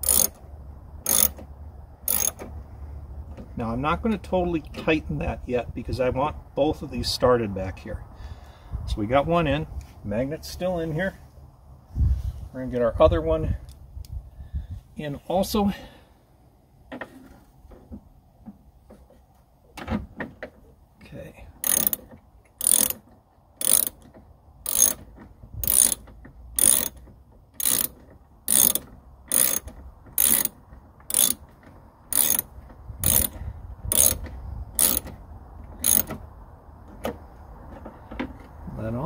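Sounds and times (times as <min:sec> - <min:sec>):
ratchet pawl clicking: 0:00.0 - 0:00.4, 0:01.0 - 0:01.4, 0:02.1 - 0:02.4, 0:21.6 - 0:22.0, 0:22.6 - 0:23.0, 0:23.6 - 0:24.0, 0:24.6 - 0:25.0, 0:25.6 - 0:27.0, 0:27.6 - 0:31.4, 0:32.1 - 0:34.2, 0:34.8 - 0:35.1, 0:35.8 - 0:36.2.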